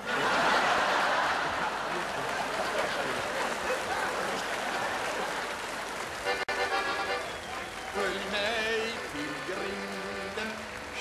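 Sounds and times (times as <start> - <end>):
audience laughing: 0.0 - 6.0
audience applauding: 0.0 - 11.0.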